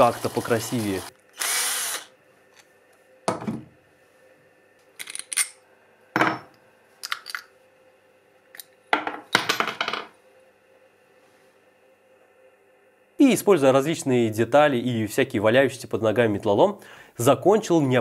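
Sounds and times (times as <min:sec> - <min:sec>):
metal tools clattering on workbench: 0:09.0 - 0:10.1.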